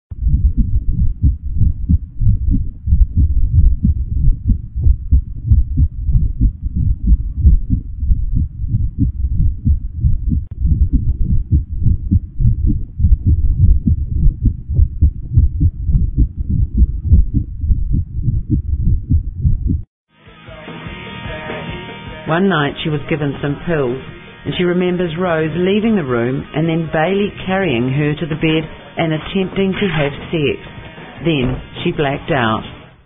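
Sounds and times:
low throbbing rumble: 0:00.1 - 0:19.9.

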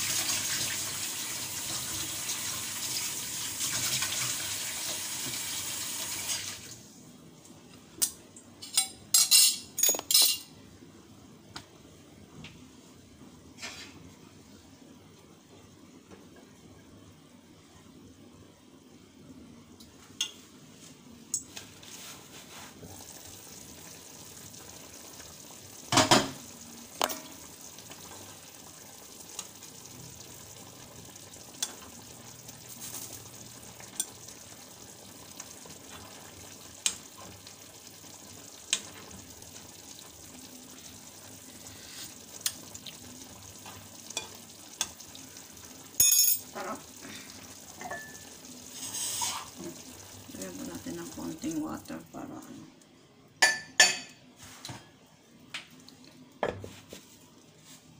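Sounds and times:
food sizzling in a pan: 0:00.0 - 0:06.9, 0:20.3 - 0:52.6.

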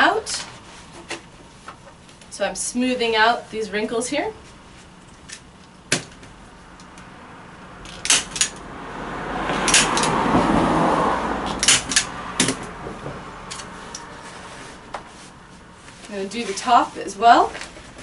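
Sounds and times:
canvas rustling scrape: 0:13.7 - 0:18.0.

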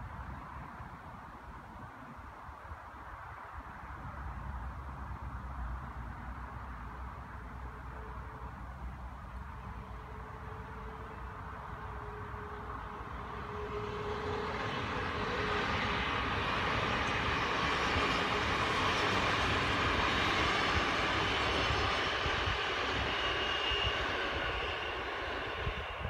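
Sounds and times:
electric train passing: 0:06.2 - 0:26.0
train wheels rumbling on rails: 0:08.8 - 0:26.0.

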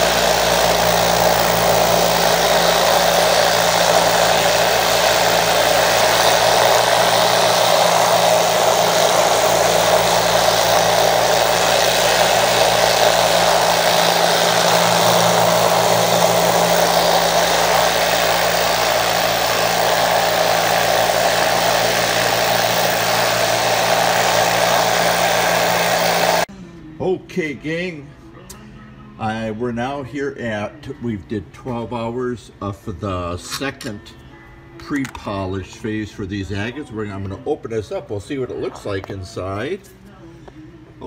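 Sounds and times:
tumbler motor hum: 0:00.0 - 0:26.5.

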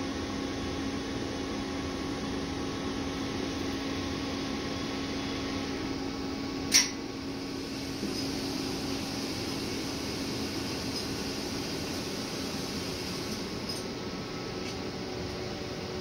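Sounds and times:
sharp click: 0:06.7 - 0:07.0.

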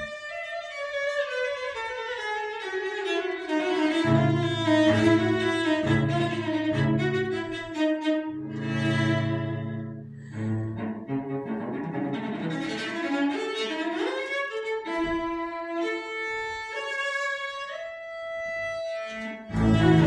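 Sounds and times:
high bowed melody: 0:03.6 - 0:11.7, 0:18.7 - 0:20.0
low bowed bass notes: 0:03.9 - 0:12.8, 0:19.4 - 0:20.0.

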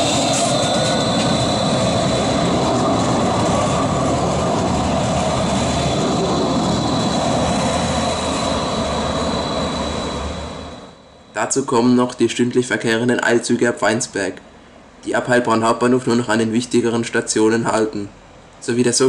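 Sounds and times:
light rail car passing: 0:00.0 - 0:13.5
high whine: 0:00.0 - 0:13.9.

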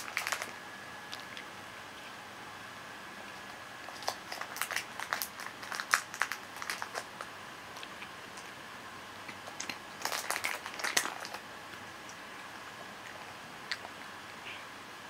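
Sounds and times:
cat crunching dry food: 0:00.0 - 0:01.5, 0:03.3 - 0:08.6, 0:09.2 - 0:14.4.

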